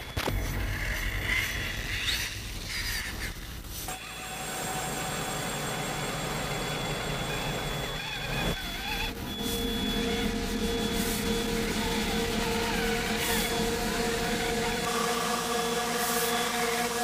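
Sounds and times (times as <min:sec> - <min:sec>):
electric motor whining: 0:03.9 - 0:17.0.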